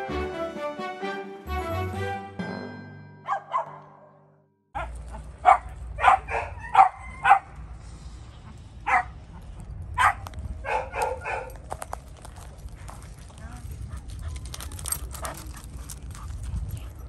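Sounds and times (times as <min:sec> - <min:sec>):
dogs barking: 0:03.3 - 0:04.2, 0:04.8 - 0:07.6, 0:08.8 - 0:11.9
steady low rumble: 0:04.8 - 0:17.0.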